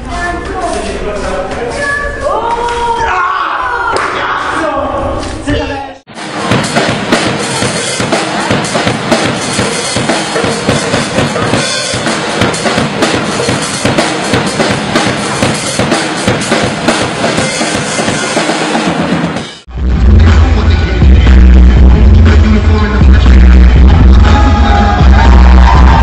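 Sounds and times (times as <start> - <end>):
drum kit playing groove: 6.1 - 26.0
small band music: 6.1 - 26.0.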